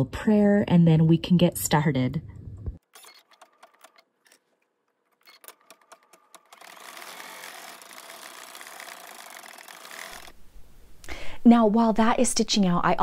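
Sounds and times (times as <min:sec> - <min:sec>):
embroidery machine stitching: 0:02.8 - 0:10.4
light machine clicks: 0:02.9 - 0:04.4, 0:05.1 - 0:10.4.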